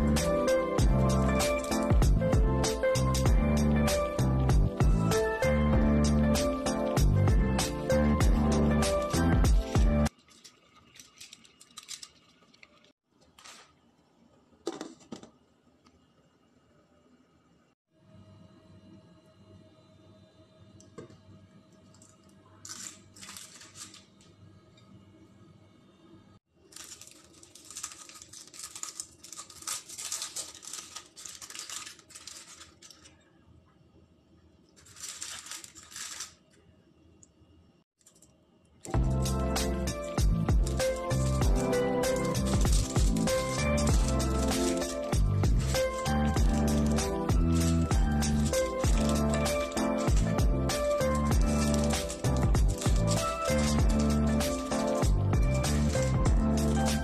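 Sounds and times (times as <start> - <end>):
background music: 0.0 - 10.1, 38.9 - 57.0
foil rustling: 13.3 - 13.8, 22.6 - 24.1, 26.6 - 33.2, 34.8 - 36.4, 39.2 - 57.0.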